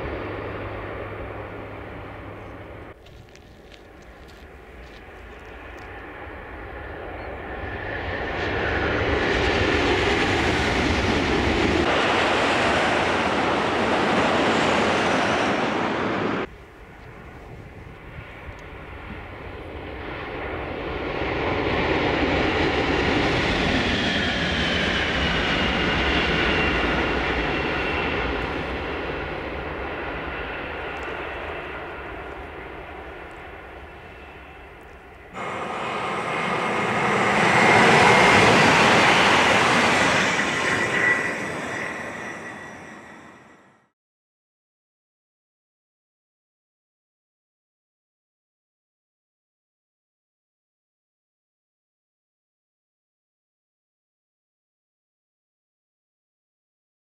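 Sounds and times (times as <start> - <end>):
high-speed trains passing: 0.0 - 43.9.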